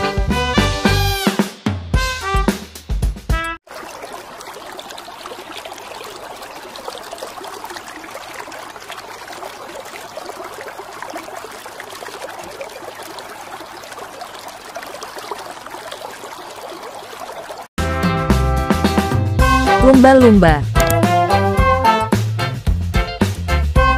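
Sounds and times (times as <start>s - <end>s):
water trickling and bubbling: 3.6s - 17.7s.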